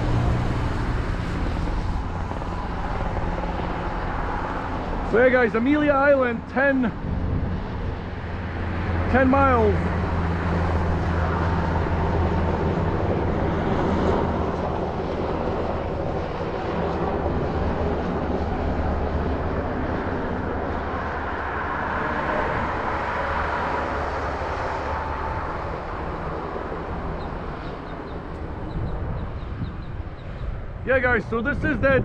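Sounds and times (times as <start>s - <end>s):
low hum: 0.0s - 32.0s
road noise: 0.0s - 32.0s
wind rush: 0.0s - 32.0s.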